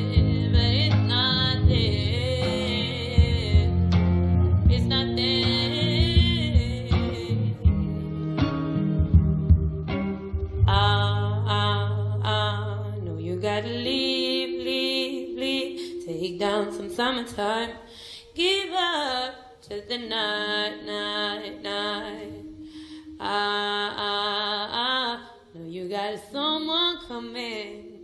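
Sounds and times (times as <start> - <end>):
woman singing with vibrato: 0.0 - 8.1, 10.6 - 28.0
low sustained note: 13.8 - 18.8.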